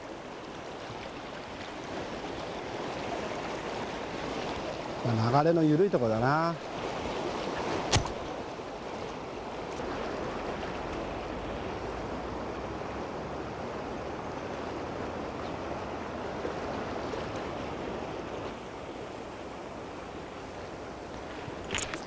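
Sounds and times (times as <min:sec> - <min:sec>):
sharp click: 0:07.9 - 0:08.3, 0:21.7 - 0:22.0.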